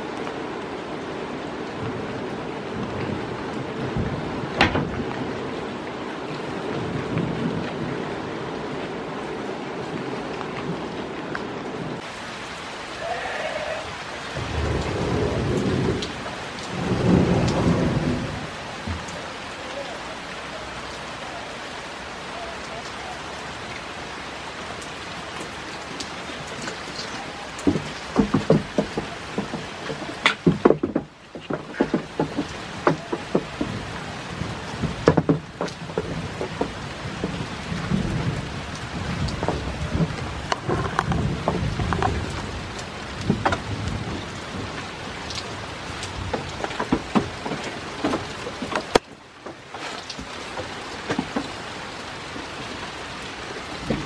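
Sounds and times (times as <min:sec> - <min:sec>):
steady rain falling: 0:00.0 - 0:54.0
goat hooves on wooden boards: 0:26.0 - 0:34.1, 0:34.8 - 0:44.0, 0:45.9 - 0:51.7.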